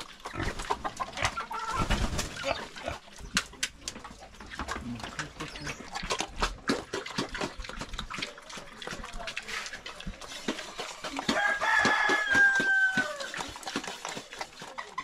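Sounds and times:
rooster crowing: 11.3 - 13.4.

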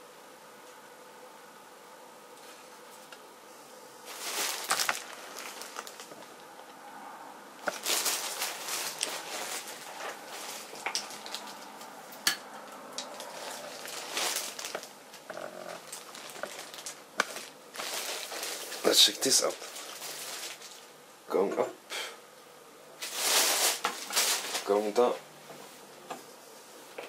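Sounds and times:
handling rustling and scraping: 4.0 - 6.5, 7.6 - 21.0, 23.0 - 27.0.

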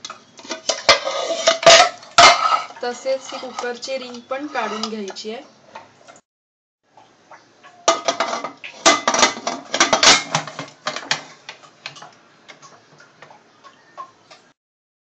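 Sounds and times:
metal lid clanking and scraping: 0.4 - 5.2, 7.9 - 11.3.

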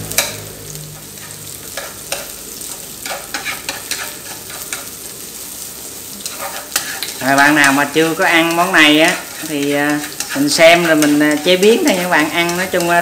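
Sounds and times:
garlic sizzling in oil: 0.0 - 13.0
chopsticks scraping a pan: 1.0 - 5.1, 6.2 - 13.0.

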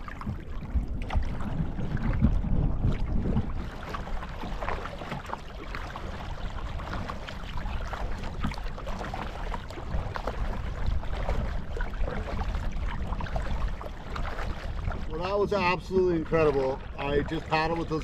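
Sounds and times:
water splashing against kayak hull: 0.0 - 18.0
wind rumble on microphone: 0.0 - 18.0.

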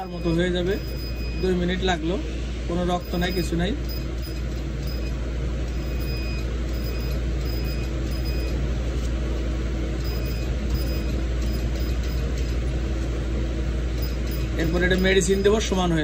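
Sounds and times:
short high beeps: 0.0 - 1.8, 3.0 - 8.6, 10.0 - 12.6, 14.0 - 15.6
machine humming: 0.0 - 16.0.

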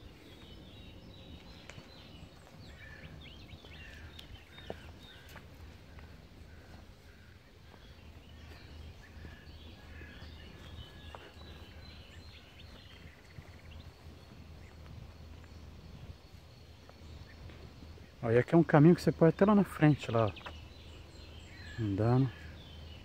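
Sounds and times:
steady low rumble: 0.0 - 18.4
small birds chirping: 0.0 - 23.0.

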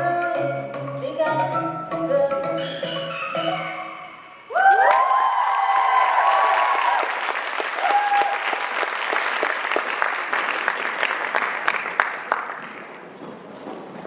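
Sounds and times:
audience cheering: 4.5 - 12.0
audience clapping: 4.6 - 13.3.

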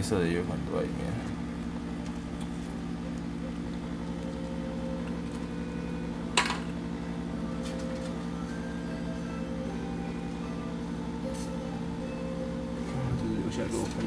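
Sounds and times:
appliance humming: 0.0 - 14.0.

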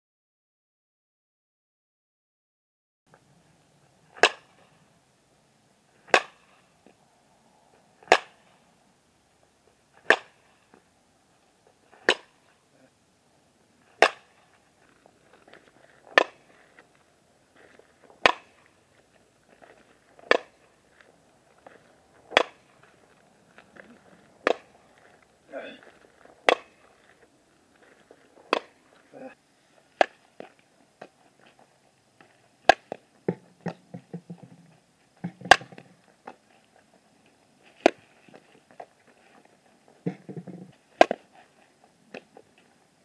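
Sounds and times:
bat striking balls: 4.1 - 4.6, 6.0 - 6.6, 8.0 - 8.5, 10.0 - 10.5, 12.0 - 12.4, 14.0 - 14.4, 16.1 - 16.5, 18.2 - 18.6, 20.2 - 20.6, 22.2 - 22.9, 24.4 - 24.8, 26.4 - 26.9, 28.5 - 28.8, 30.0 - 30.6, 32.6 - 34.6, 35.2 - 35.9, 40.0 - 41.3.

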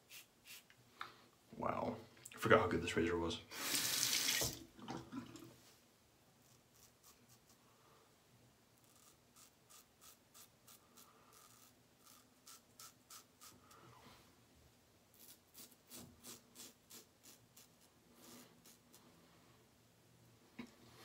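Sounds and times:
razor scratching stubble: 0.1 - 0.7, 6.4 - 7.6, 8.8 - 13.7, 15.1 - 18.9
tap water running into sink: 3.7 - 5.5.

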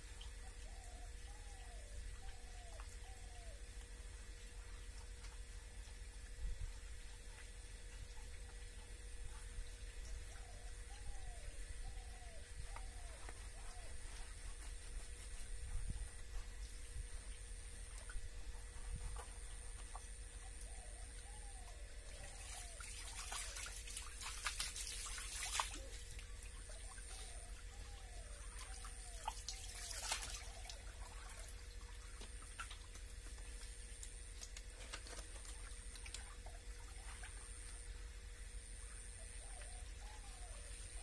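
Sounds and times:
faint steady hum: 0.0 - 41.0
water splashing and trickling: 22.0 - 37.7.

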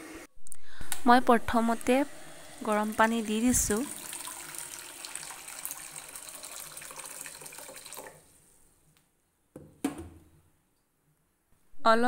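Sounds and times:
water pouring into a pan: 2.2 - 8.6
knock: 9.6 - 10.2.

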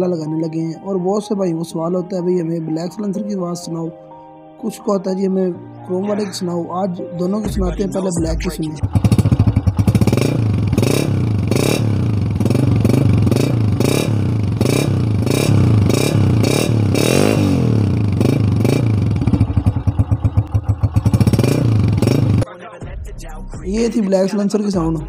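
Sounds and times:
motorcycle engine revving: 8.7 - 22.5.

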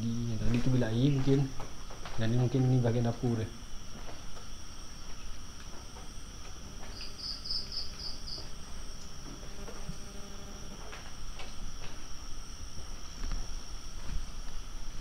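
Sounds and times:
crickets trilling: 0.0 - 15.0
loud insect chirps: 0.0 - 15.0.

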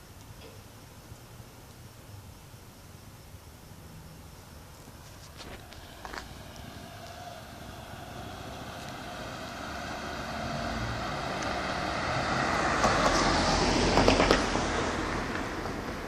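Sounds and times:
car driving past: 5.4 - 16.0.

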